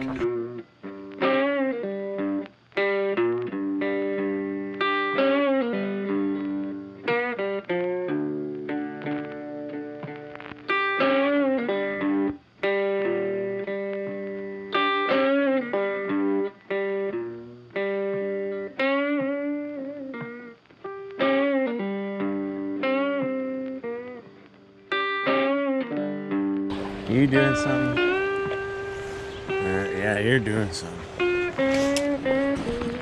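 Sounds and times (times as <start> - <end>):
plucked guitar melody: 0.0 - 33.0.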